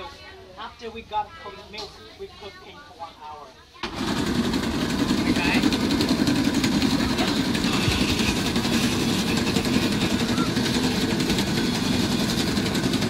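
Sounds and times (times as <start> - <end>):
steady engine drone: 4.8 - 13.0.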